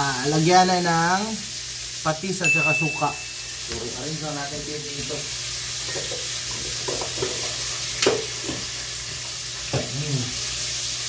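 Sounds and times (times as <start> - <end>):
tableware clinking: 2.4 - 4.2, 5.8 - 7.4.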